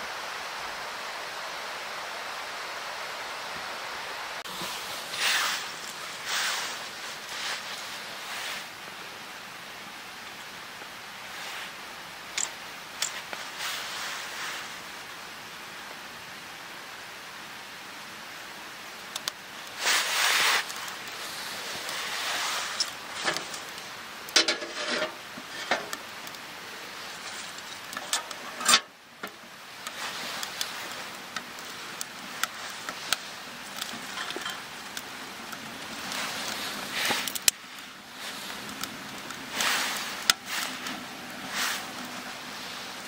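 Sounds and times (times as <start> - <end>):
wood fire crackling: 4.3 - 43.0
wood being handled: 19.2 - 26.4.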